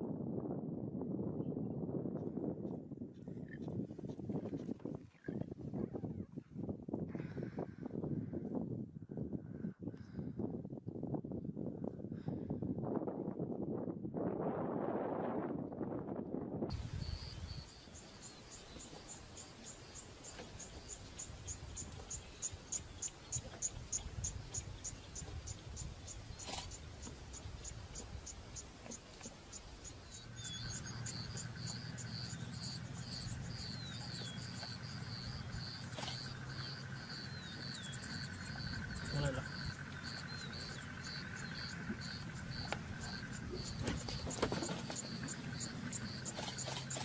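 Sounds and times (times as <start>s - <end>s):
insect trill: 16.7s - 47.0s
insects chirping: 16.7s - 47.0s.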